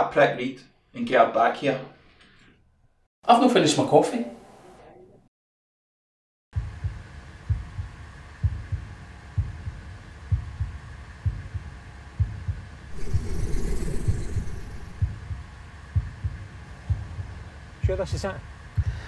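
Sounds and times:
heartbeat-like bass pulse: 6.6 - 18.0
hissing swell: 12.9 - 15.2
steady drone: 12.9 - 15.4.

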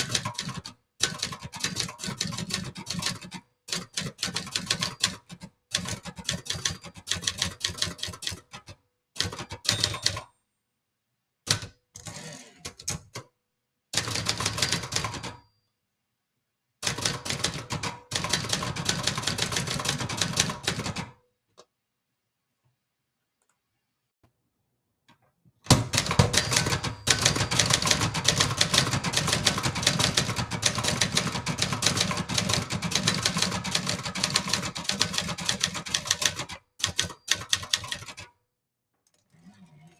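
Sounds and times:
manual typewriter typing: 0.0 - 10.3, 14.0 - 15.4, 16.8 - 21.2, 25.7 - 38.3.

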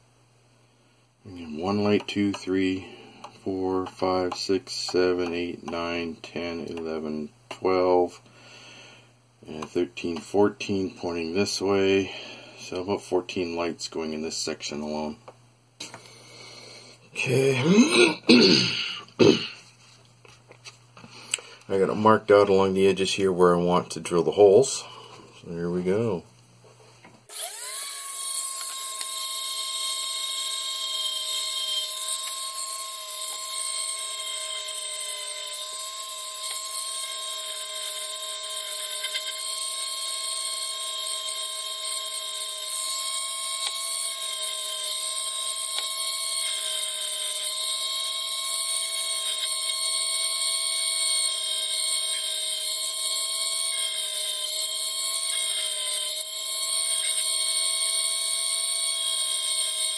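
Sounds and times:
rotary tool motor whine: 27.3 - 59.9.

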